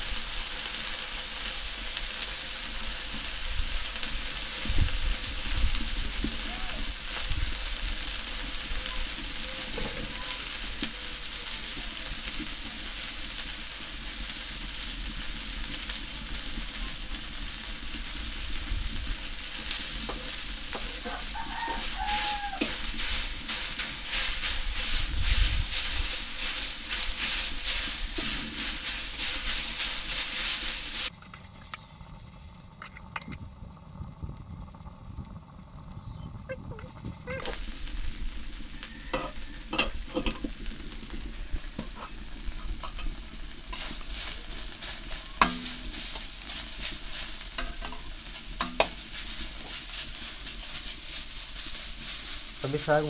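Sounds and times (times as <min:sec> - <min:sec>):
greens sizzling in a pan: 0:00.0 - 0:53.0
rooster crowing: 0:21.0 - 0:22.8, 0:38.7 - 0:39.8.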